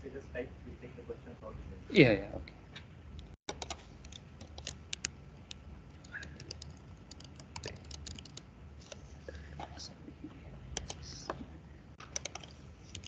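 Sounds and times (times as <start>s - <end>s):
typing on computer keyboard: 3.5s - 5.1s, 6.0s - 8.4s, 12.0s - 13.0s.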